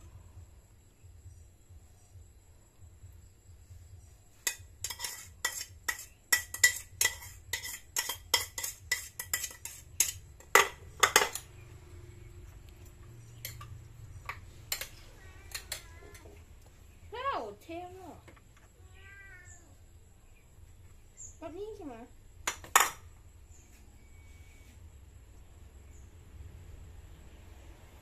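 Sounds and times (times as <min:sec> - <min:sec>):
metal spoon scraping ceramic bowls: 0:04.4 - 0:11.6, 0:13.2 - 0:16.3.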